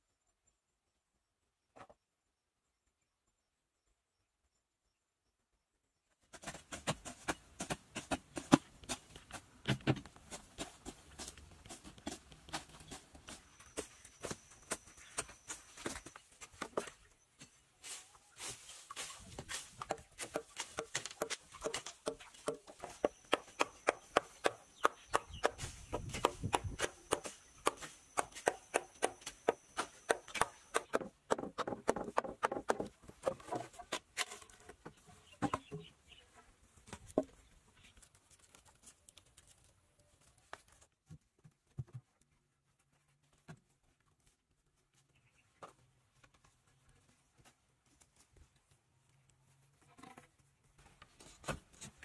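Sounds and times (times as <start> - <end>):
hand tools chopping wood and earth: 6.3 - 35.9.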